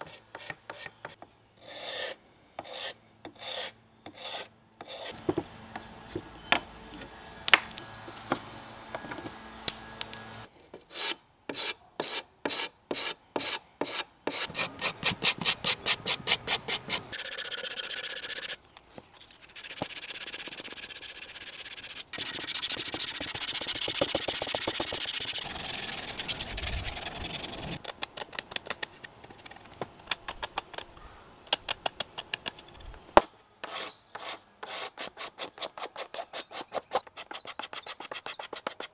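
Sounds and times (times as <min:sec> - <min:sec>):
sandpaper rubbing on wood: 0:10.9 - 0:18.6, 0:19.4 - 0:27.8, 0:33.6 - 0:38.9
scraper strokes on wood: 0:10.9 - 0:18.6, 0:19.2 - 0:27.8, 0:33.6 - 0:38.9.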